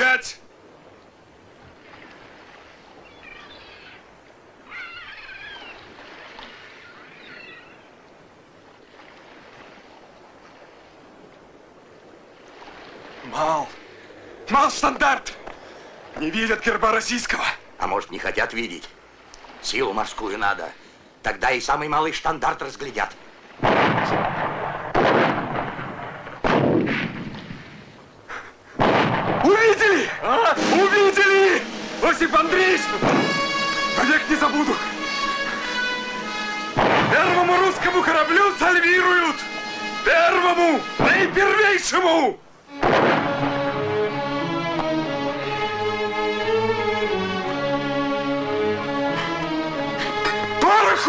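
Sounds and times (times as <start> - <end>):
soft wash of water: 0.0 - 51.0
wavering bird calls: 2.8 - 8.2
cannon shots: 23.6 - 27.8, 28.8 - 29.8, 33.0 - 33.9, 36.7 - 38.0, 42.8 - 43.7.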